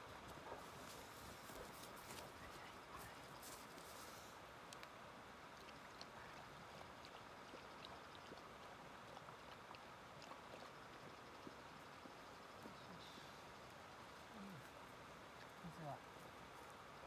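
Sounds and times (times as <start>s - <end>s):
quiet steady hiss: 0.0s - 17.0s
dog lapping water: 5.5s - 13.2s.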